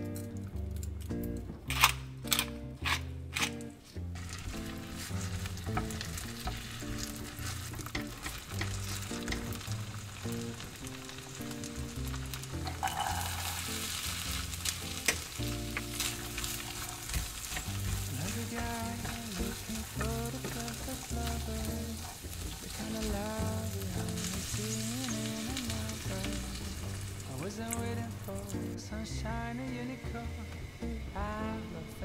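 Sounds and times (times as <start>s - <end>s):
soft background music: 0.0s - 32.0s
potatoes sizzling in a frying pan: 4.1s - 32.0s
spatula stirring a pan: 4.2s - 28.4s
corn kernels poured into pan: 4.2s - 28.5s.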